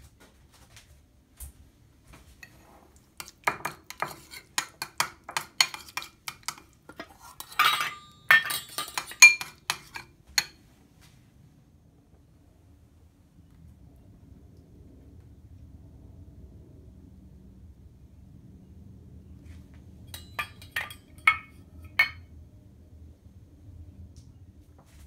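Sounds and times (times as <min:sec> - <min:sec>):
spoon scraping ceramic bowl: 0:02.4 - 0:10.6, 0:20.1 - 0:22.2
metal bowls clanking on countertop: 0:03.2 - 0:10.6, 0:20.1 - 0:22.2.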